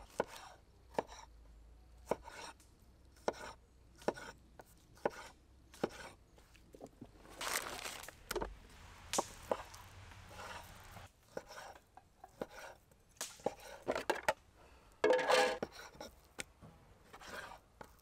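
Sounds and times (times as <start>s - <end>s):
knife slicing tomatoes: 0.0s - 1.3s, 2.0s - 2.6s, 3.2s - 6.2s
knife scraping cutting board: 2.0s - 2.6s, 3.2s - 6.2s, 10.3s - 10.7s, 11.3s - 12.8s, 13.4s - 14.0s, 15.1s - 16.2s, 17.1s - 18.0s.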